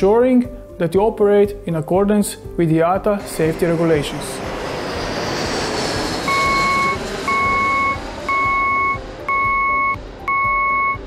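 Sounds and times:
low vehicle hum: 3.2s - 11.0s
loud single-tone warning beeps: 6.3s - 11.0s.

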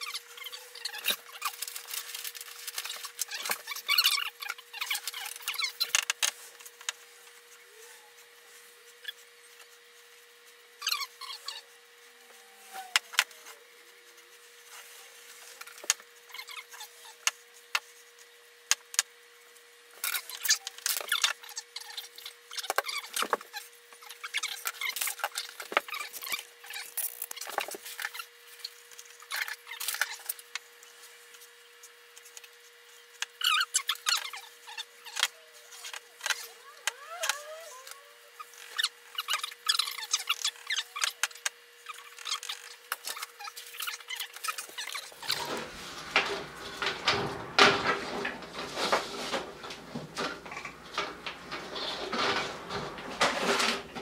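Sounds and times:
iron squeaking and scraping on wood: 44.4s - 54.0s.

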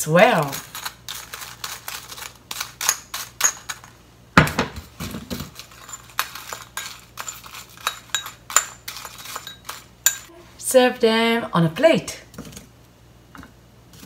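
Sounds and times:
spoon clinking against ceramic bowl: 5.8s - 10.3s.

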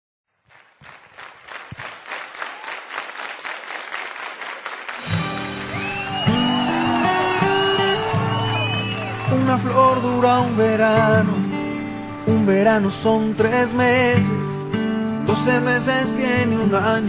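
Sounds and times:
applause: 0.4s - 14.0s
song with guitar: 5.0s - 17.0s.

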